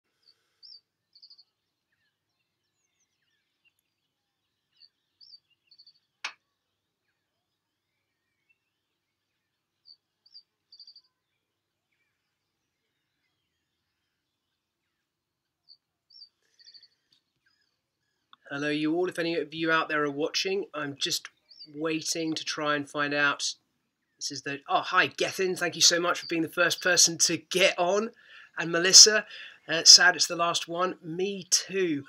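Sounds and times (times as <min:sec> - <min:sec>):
faint bird chirps: 0:00.1 - 0:18.5
songbird phrase with buzzy trill: 0:24.2 - 0:32.0.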